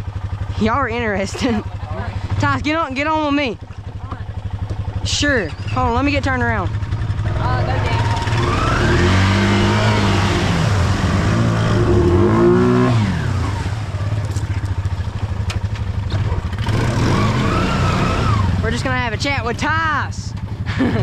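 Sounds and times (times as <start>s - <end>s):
quad bike engine revving: 0.0s - 21.0s.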